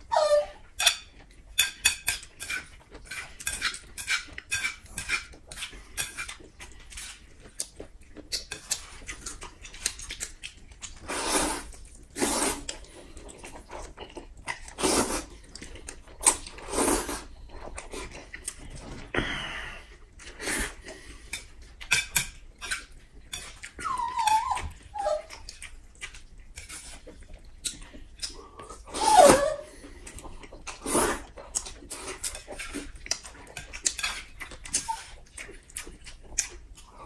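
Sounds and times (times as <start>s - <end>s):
wet chewing and smacking: 0.6s - 19.1s, 20.0s - 28.9s, 29.7s - 37.0s
noodle slurping: 11.0s - 13.2s, 14.6s - 15.4s, 16.3s - 17.4s, 30.7s - 32.9s.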